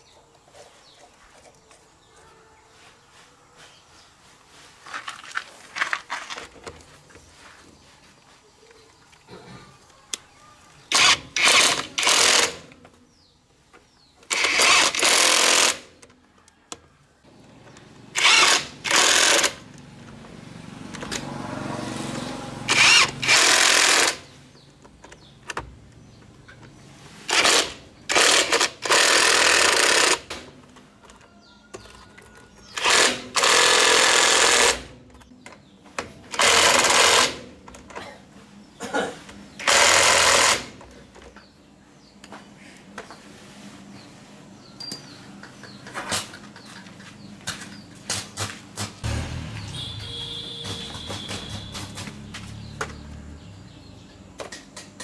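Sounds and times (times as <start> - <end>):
impact wrench hammering: 49.0 - 52.2.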